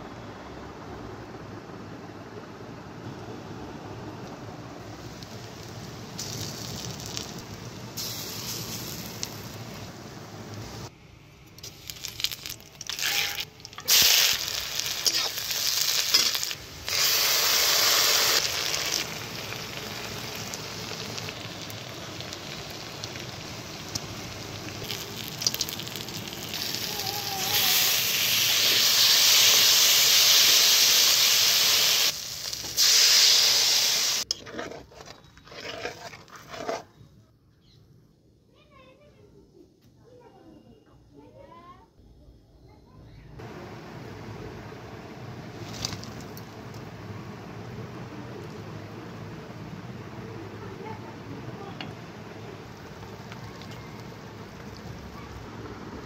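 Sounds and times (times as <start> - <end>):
onion frying in hot oil: 4.6 - 10.9, 11.5 - 36.8, 43.5 - 56.0.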